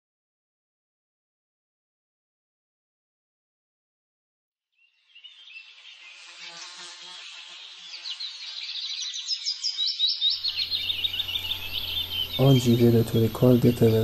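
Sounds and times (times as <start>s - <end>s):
birds chirping: 4.8s - 14.0s
insects chirping: 4.9s - 14.0s.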